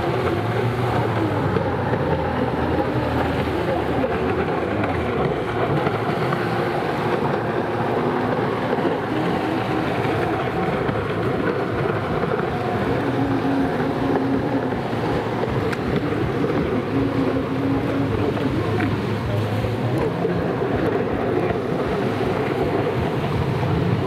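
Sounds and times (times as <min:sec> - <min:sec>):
jet ski engine running hard: 0:00.0 - 0:24.0
wind buffeting microphone: 0:00.0 - 0:24.0.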